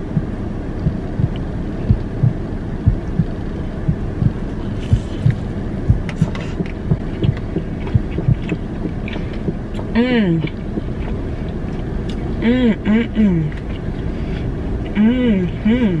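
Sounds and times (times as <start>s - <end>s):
low thumps: 0.0s - 9.7s
low hum: 0.0s - 16.0s.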